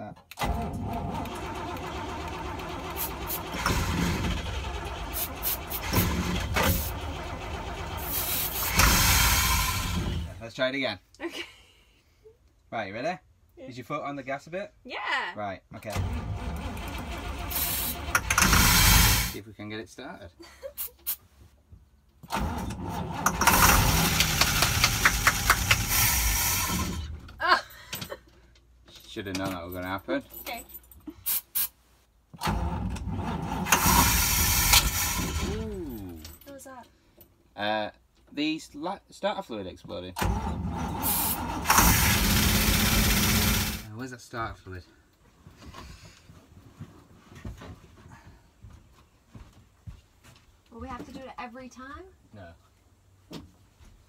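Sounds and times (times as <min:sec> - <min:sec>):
engine cranking on starter: 0:00.3 - 0:10.4, 0:15.8 - 0:19.4, 0:22.2 - 0:27.3, 0:32.4 - 0:36.4, 0:40.2 - 0:43.9.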